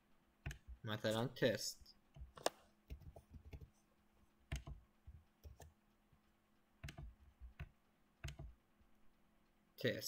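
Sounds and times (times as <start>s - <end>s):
keyboard keystrokes: 0.4s - 0.8s, 4.5s - 5.7s, 6.8s - 8.6s.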